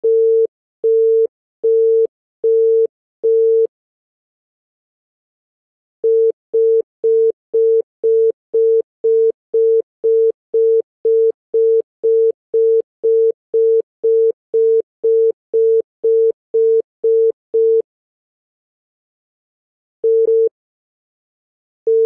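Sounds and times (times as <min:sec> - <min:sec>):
telephone congestion tone beeping: 0:00.0 - 0:03.7, 0:20.0 - 0:20.5.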